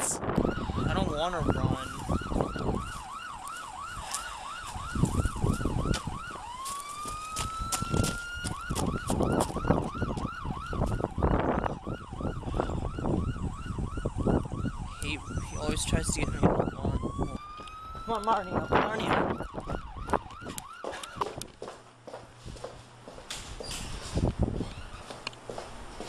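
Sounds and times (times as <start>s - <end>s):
siren yelping and wailing: 0.0s - 21.5s
rustling noise: 22.2s - 26.0s.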